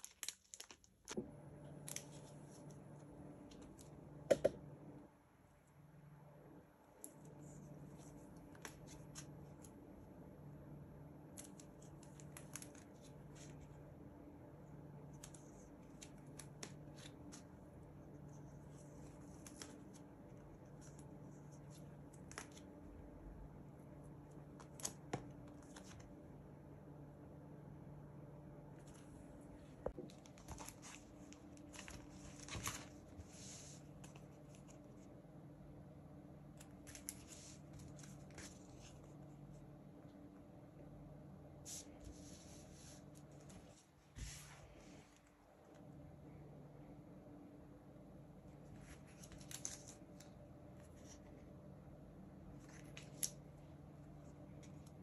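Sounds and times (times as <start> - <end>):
packaging crinkling and tearing: 0.0 - 1.1
low steady hum: 0.0 - 55.0.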